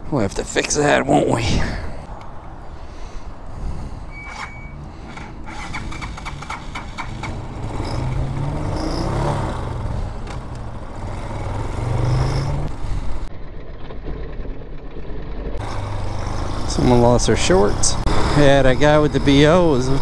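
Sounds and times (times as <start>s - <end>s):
motorcycle engine pulling away: 4.7s - 20.0s.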